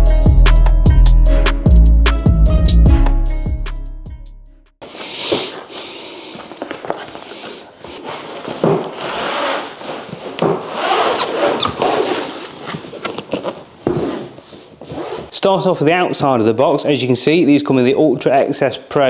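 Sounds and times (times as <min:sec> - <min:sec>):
cardboard box scraping and crackling: 0:05.1 - 0:15.3.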